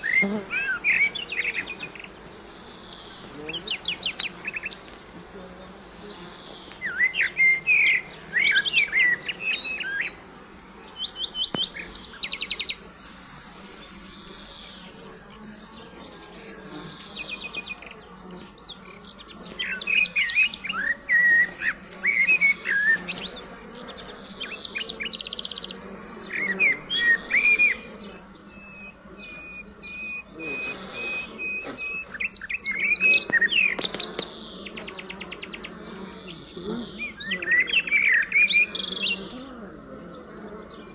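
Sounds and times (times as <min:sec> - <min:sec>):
honeybees humming: 0:00.0 - 0:40.9
songbirds singing: 0:00.0 - 0:40.9
bird trill: 0:06.8 - 0:36.1.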